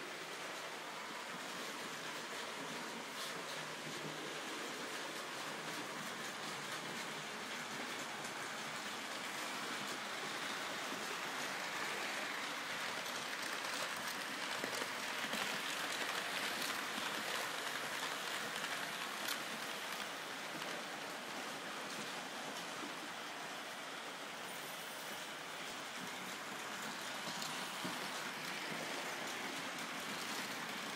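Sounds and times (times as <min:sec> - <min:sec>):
model train wheels hissing on rails: 0:00.0 - 0:30.9.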